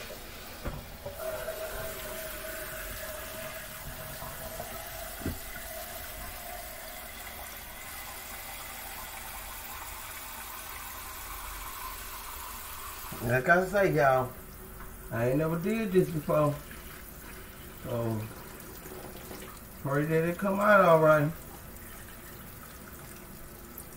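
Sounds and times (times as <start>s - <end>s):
tap water running into a sink: 0.0s - 23.9s
knock: 4.5s - 5.4s.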